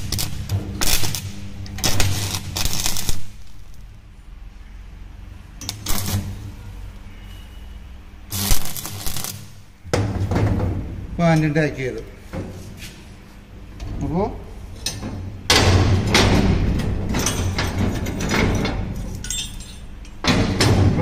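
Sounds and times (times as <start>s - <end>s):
welding arc crackling: 0.0s - 4.0s, 5.6s - 6.6s, 8.2s - 9.8s.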